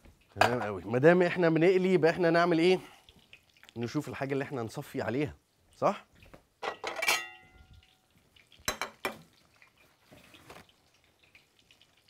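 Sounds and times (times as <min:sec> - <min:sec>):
metal kitchenware clattering: 0:00.4 - 0:00.8, 0:06.6 - 0:07.7, 0:08.7 - 0:09.2
metal clang: 0:06.6 - 0:07.5.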